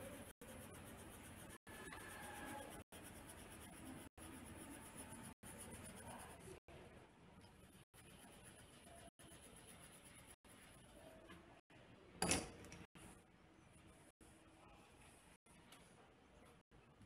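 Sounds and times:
pen scratching on paper: 0:00.0 - 0:06.6, 0:07.6 - 0:11.1.

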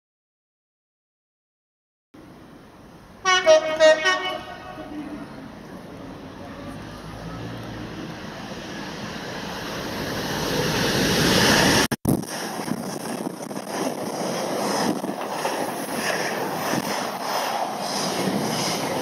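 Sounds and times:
diesel locomotive passing: 0:02.2 - 0:19.0
wind rush: 0:08.5 - 0:19.0.

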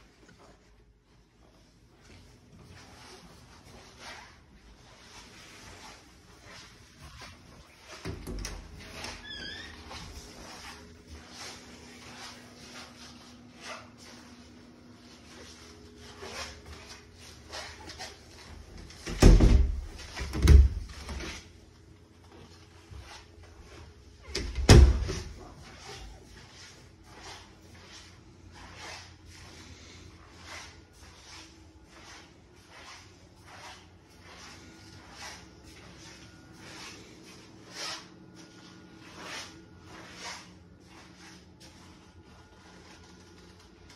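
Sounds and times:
footsteps on hard floor: 0:01.4 - 0:21.4.

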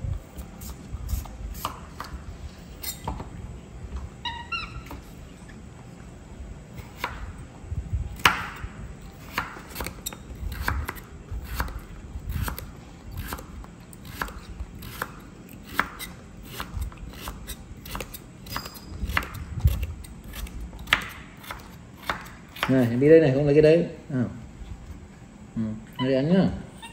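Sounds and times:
knife slicing carrot: 0:00.3 - 0:02.2, 0:09.2 - 0:23.0.

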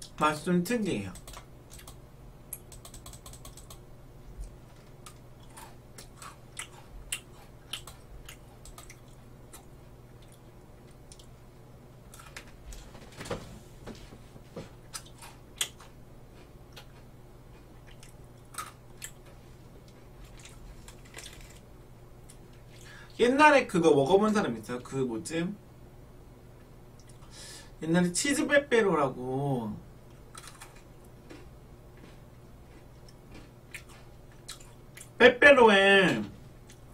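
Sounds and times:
low steady hum: 0:00.0 - 0:36.9
cookie sticks crunching: 0:04.4 - 0:11.3, 0:14.9 - 0:22.5, 0:30.1 - 0:35.2.

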